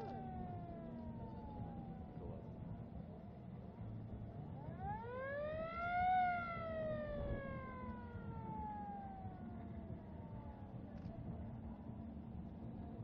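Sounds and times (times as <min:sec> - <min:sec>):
fire engine siren wailing: 0:04.6 - 0:10.6.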